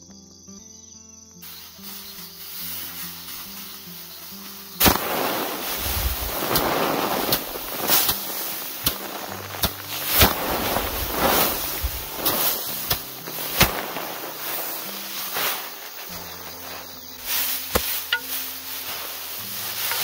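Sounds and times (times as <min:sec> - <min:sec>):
rushing hiss: 0:01.4 - 0:20.0
sharp cracks or knocks: 0:04.8 - 0:16.2, 0:17.7 - 0:18.5.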